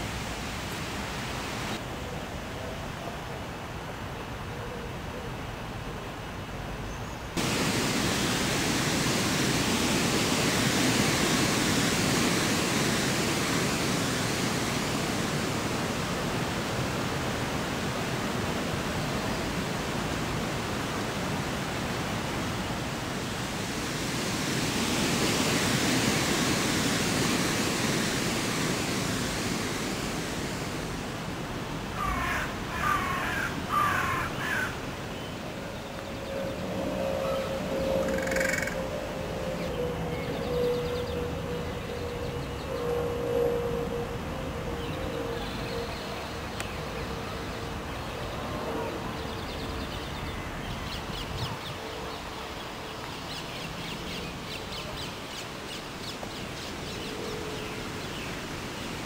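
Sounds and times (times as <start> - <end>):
outdoor rushing noise: 7.4 - 31.9
bird calling: 32.0 - 34.8, 36.2 - 39.1.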